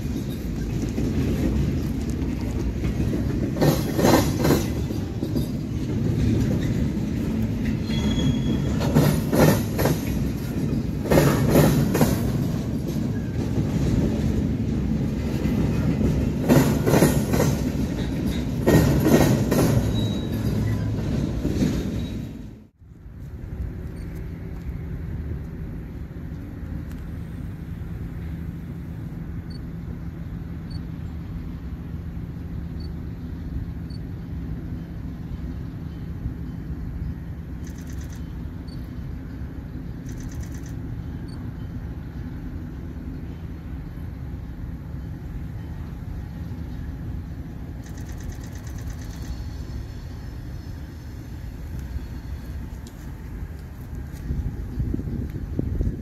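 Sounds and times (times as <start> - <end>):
distant diesel train rumble: 0.0 - 56.0
wind on microphone: 53.1 - 56.0.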